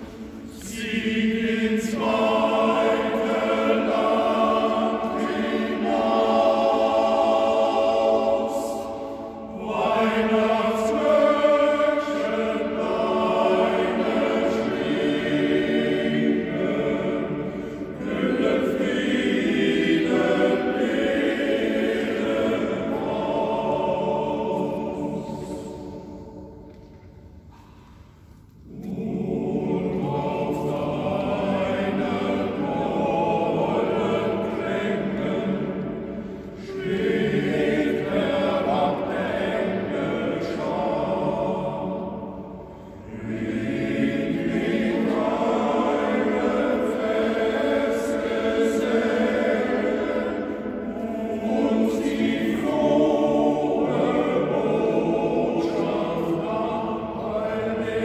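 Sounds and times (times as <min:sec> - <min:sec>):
male choir singing: 0:00.0 - 0:26.6, 0:28.7 - 0:58.0.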